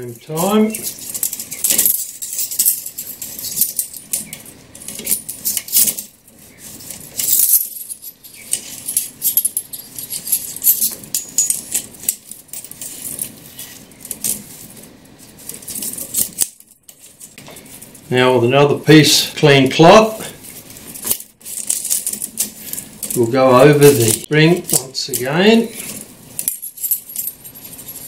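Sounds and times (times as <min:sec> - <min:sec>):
metal spring jingling and clicking: 0:00.3 - 0:14.5.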